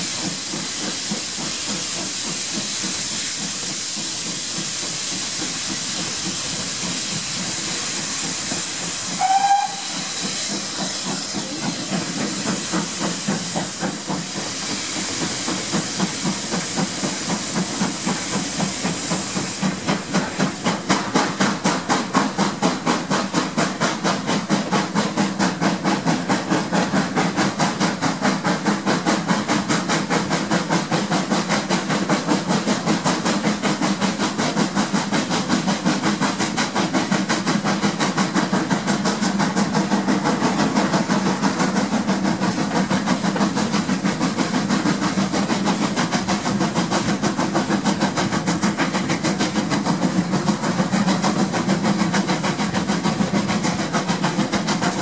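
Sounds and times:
locomotive exhaust chuffing: 0.0s - 55.0s
steam hissing: 0.0s - 55.0s
steam whistle toot: 9.2s - 10.5s.

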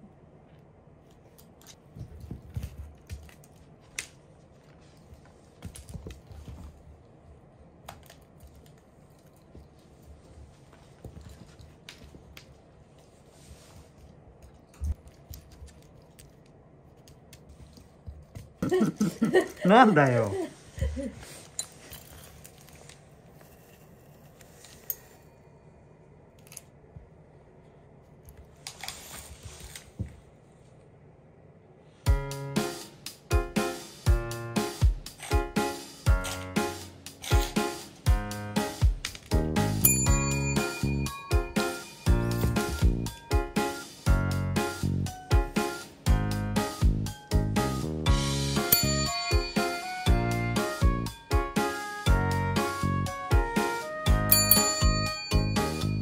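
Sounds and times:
soft rustling: 8.5s - 18.6s, 28.5s - 30.8s.

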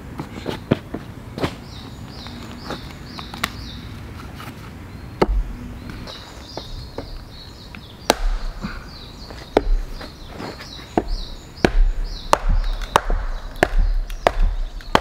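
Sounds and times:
axe chopping firewood: 5.2s - 5.6s, 8.0s - 15.0s.

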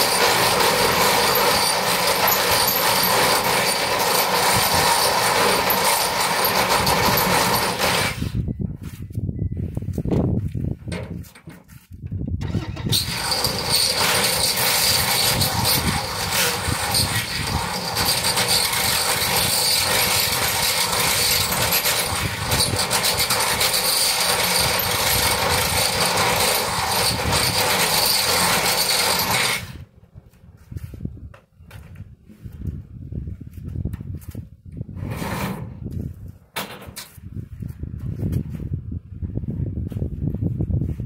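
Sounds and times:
power tool cutting steel: 0.0s - 8.4s, 12.4s - 29.8s.

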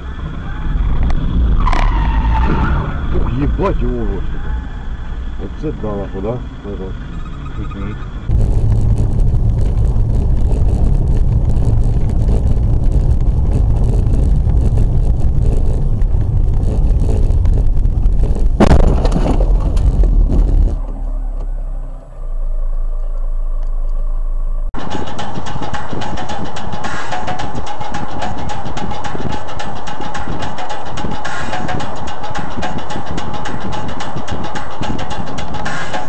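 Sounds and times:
car road noise on wet road: 0.0s - 24.7s.

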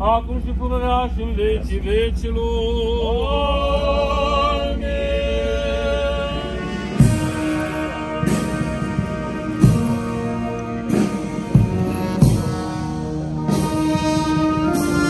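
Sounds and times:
clergy chanting: 0.0s - 11.0s
heavy drum strokes: 0.0s - 15.0s
band playing funeral march: 3.7s - 15.0s.

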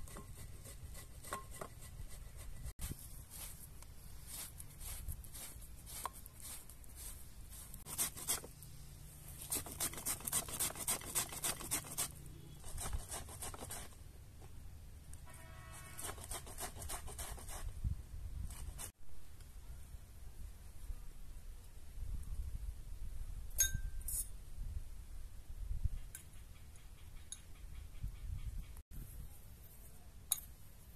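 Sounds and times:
utensil scraping potatoes: 0.0s - 8.6s, 9.3s - 14.0s.

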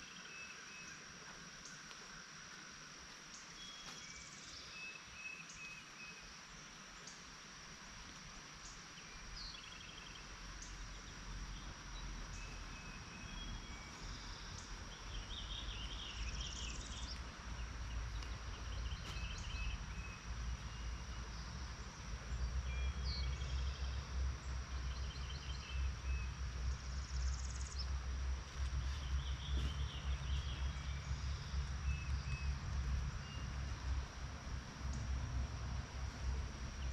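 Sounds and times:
birds singing: 8.6s - 34.2s.

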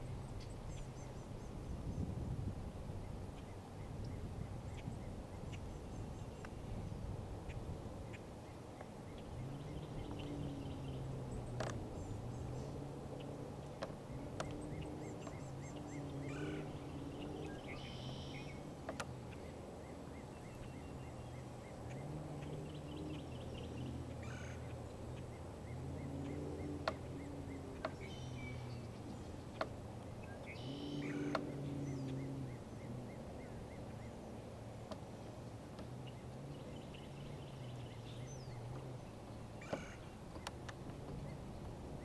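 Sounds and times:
small birds chirping: 0.0s - 2.3s, 3.0s - 42.0s.

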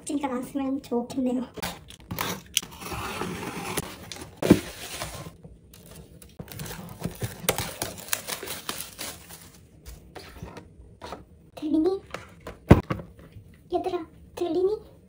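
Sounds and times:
plastic packaging crinkling: 4.7s - 9.7s.

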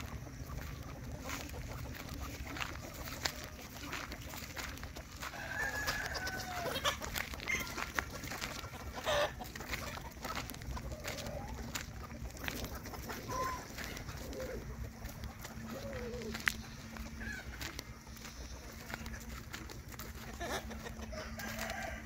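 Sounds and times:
chickens clucking: 0.0s - 22.0s
rooster crowing: 5.2s - 6.8s, 21.1s - 22.0s.

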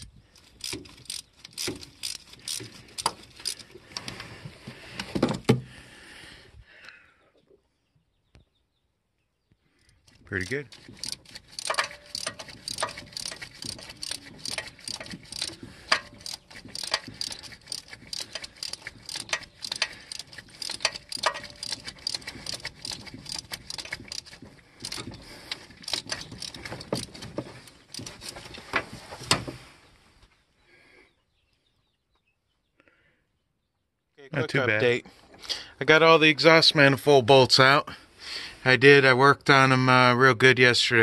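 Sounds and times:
ratchet clicking: 0.0s - 3.7s, 10.1s - 28.5s
metal clinks: 10.4s - 25.1s.

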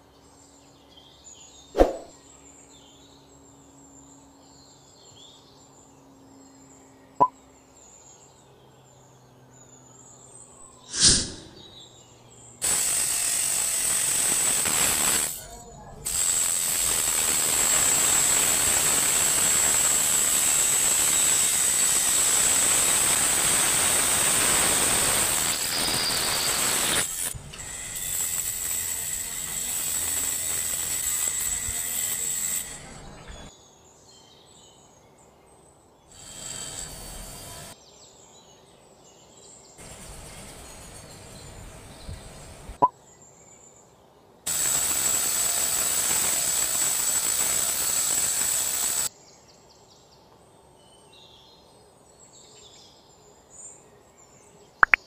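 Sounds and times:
cut-off disc grinding metal: 12.6s - 15.4s.

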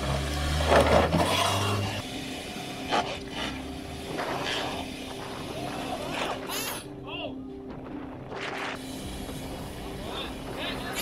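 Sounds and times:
tyres scraping over boards and rock: 0.4s - 2.0s.

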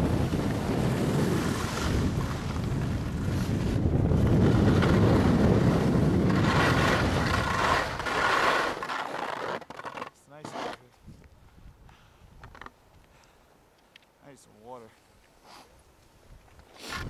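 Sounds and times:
wind on microphone: 0.0s - 8.2s, 16.2s - 17.0s
snowboards sliding on snow: 0.0s - 10.9s.

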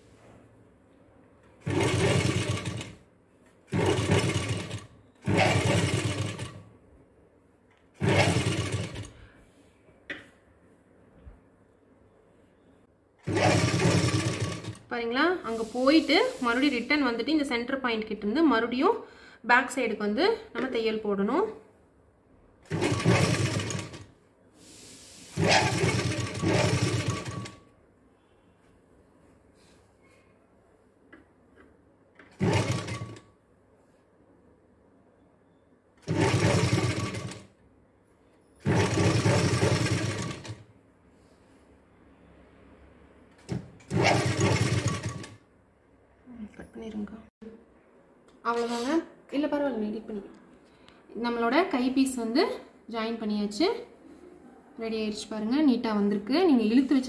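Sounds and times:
sewing machine stitching: 1.6s - 3.0s, 3.7s - 6.7s, 8.0s - 9.2s, 13.2s - 14.9s, 22.6s - 24.1s, 25.3s - 27.6s, 32.2s - 33.3s, 36.0s - 37.5s, 38.6s - 40.6s, 43.4s - 45.4s.

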